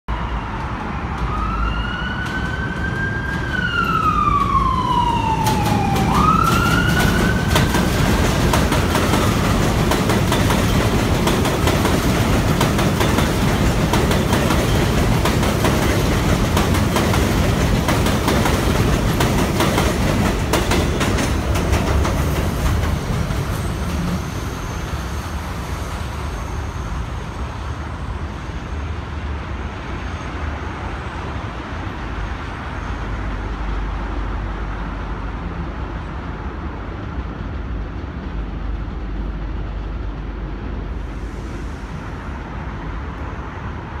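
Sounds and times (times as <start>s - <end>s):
subway train rumbling: 0.1s - 44.0s
siren wailing: 0.2s - 7.6s
wheels clacking over rail joints: 2.2s - 24.4s.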